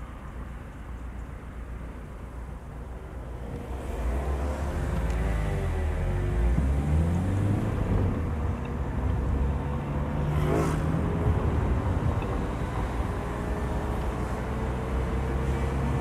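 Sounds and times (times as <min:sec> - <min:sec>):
car engine and road noise: 0:00.0 - 0:16.0.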